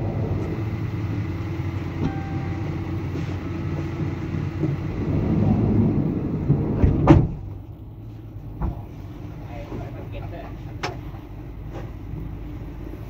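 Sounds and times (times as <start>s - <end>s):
air conditioning hum: 0.0s - 13.0s
van engine idling: 0.0s - 13.0s.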